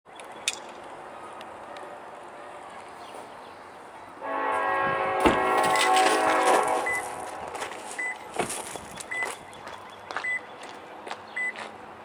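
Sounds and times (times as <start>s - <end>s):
locomotive air horn blast: 4.2s - 7.9s
sharp thump: 5.2s - 5.6s.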